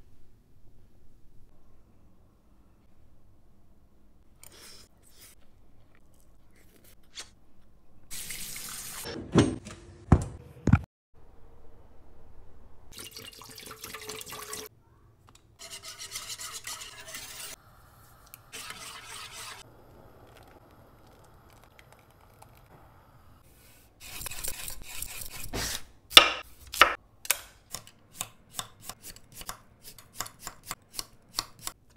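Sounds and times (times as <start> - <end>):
water pouring into a pot: 12.9 - 14.7.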